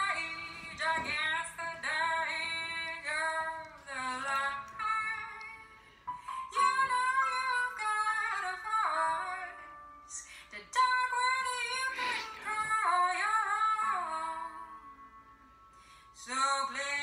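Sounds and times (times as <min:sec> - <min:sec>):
woman singing slow song: 0:00.0 - 0:05.8, 0:06.4 - 0:15.2, 0:16.2 - 0:17.0.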